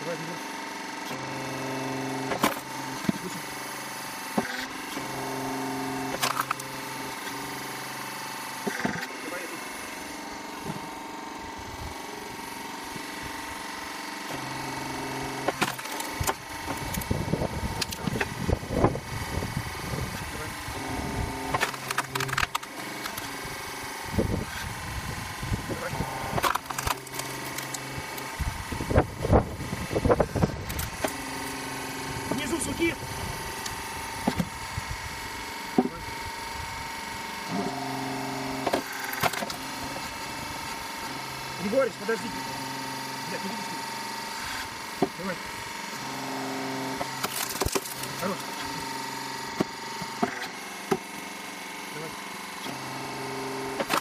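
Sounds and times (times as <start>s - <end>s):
hydraulic unit running: 0.0s - 54.0s
log splitter humming: 0.0s - 54.0s
wood splitting cracks: 15.4s - 17.1s, 21.5s - 23.3s, 26.4s - 28.3s, 47.0s - 48.6s, 53.8s - 54.0s
log cracking and splintering: 47.2s - 48.1s.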